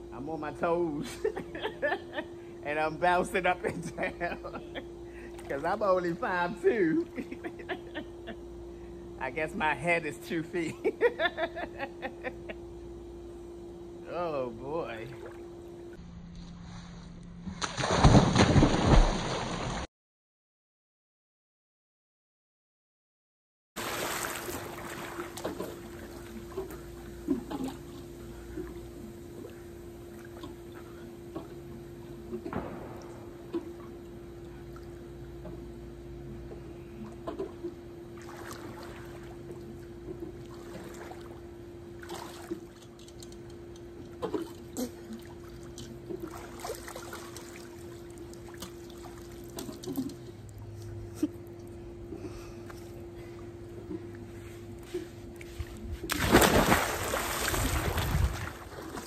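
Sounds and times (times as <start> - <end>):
steady hum: 0.0 - 19.9, 23.8 - 59.0
water splashing in pool: 17.6 - 19.9, 23.8 - 28.8, 37.4 - 42.9, 44.2 - 50.1, 56.1 - 59.0.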